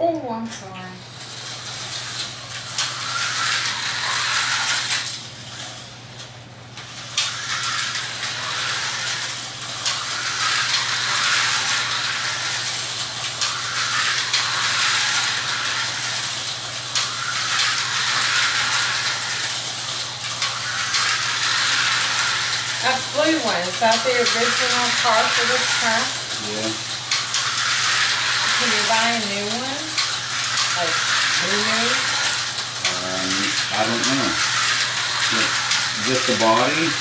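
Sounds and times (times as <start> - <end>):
slot car motors whirring: 0.6 - 37.0.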